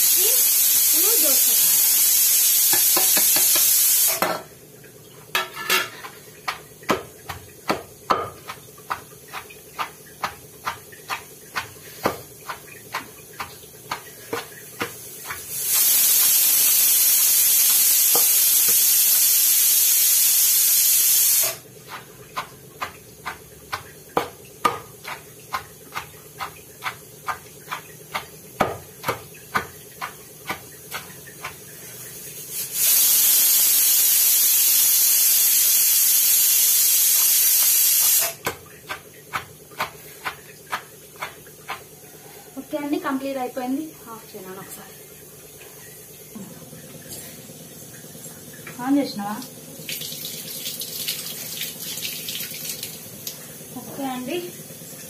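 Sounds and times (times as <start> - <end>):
loud steady hiss: 0.0 - 4.4, 15.2 - 21.6, 32.3 - 38.4
pestle pounding in stone mortar: 2.7 - 4.3, 5.9 - 16.4, 21.8 - 31.7, 38.4 - 41.9.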